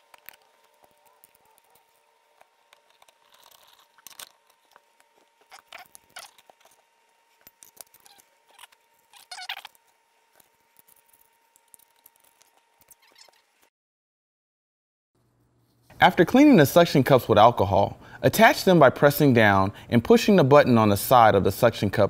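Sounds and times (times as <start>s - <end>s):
thin steady hum: 0.0s - 13.7s.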